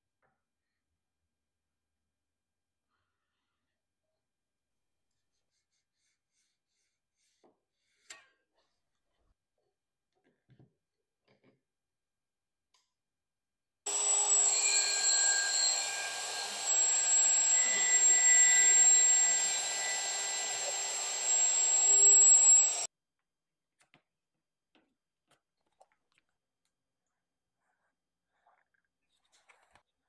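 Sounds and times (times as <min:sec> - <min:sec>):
power tool high whine: 0:13.9 - 0:22.9.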